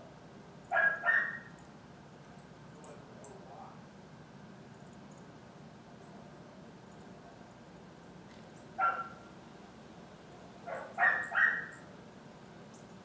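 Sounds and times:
dog barking: 0.7s - 1.5s, 8.8s - 9.2s, 10.6s - 11.8s.

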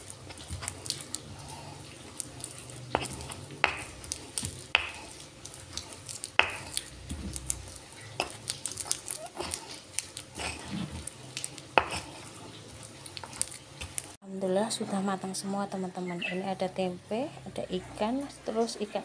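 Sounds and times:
stone pestle grinding paste: 0.0s - 14.0s.

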